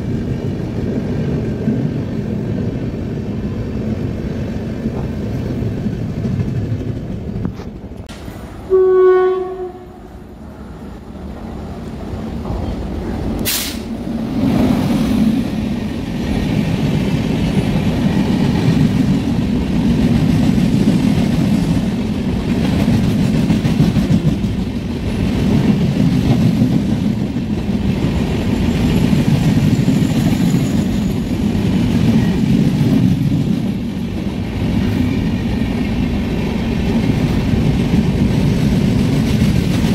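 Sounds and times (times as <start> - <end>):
train coaches rolling past: 0.0 - 39.9
locomotive horn: 8.7 - 10.1.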